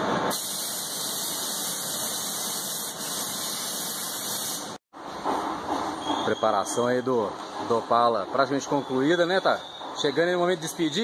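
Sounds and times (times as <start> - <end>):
spray gun hissing: 0.3 - 4.8.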